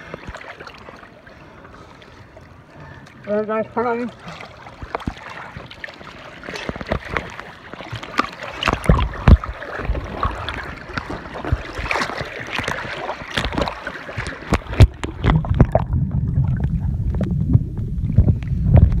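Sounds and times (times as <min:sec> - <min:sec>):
water splashing and gurgling: 0:00.0 - 0:19.0
dull underwater rumble: 0:04.4 - 0:19.0
water knocking against camera: 0:06.6 - 0:19.0.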